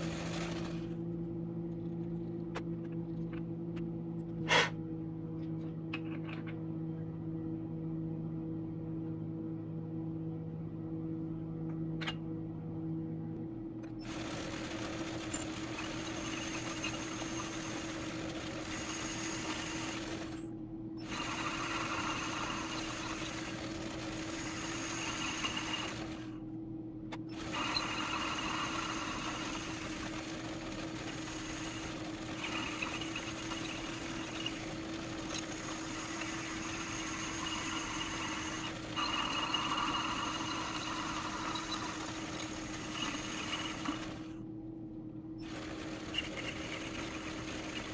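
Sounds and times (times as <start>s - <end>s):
metal lathe humming: 0.0s - 1.0s, 14.0s - 26.4s, 27.3s - 44.4s, 45.4s - 47.9s
high-pitched metal cutting noise: 14.0s - 20.4s, 21.0s - 26.4s, 27.3s - 44.3s.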